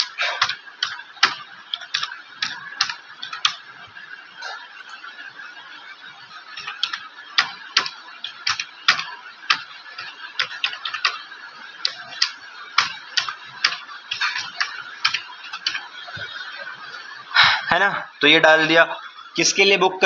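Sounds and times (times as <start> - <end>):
keyboard typing: 0.0 - 3.7, 6.5 - 16.4.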